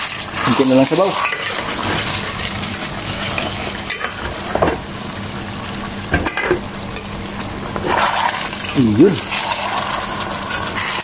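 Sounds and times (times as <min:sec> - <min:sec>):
meat sizzling in a pan: 0:00.0 - 0:11.0
spatula scraping a pan: 0:07.8 - 0:08.7.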